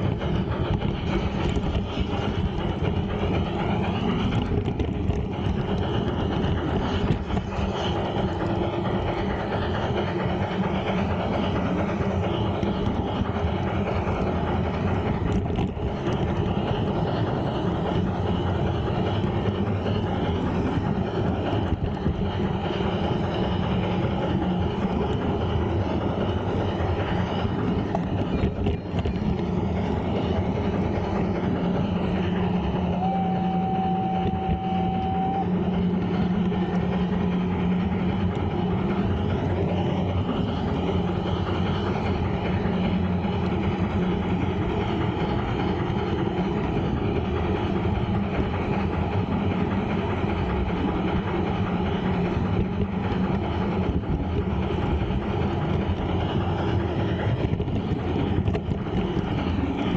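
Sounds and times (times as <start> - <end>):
metal wheels rumbling on rails: 0.0 - 59.9
steady tone: 16.4 - 46.5.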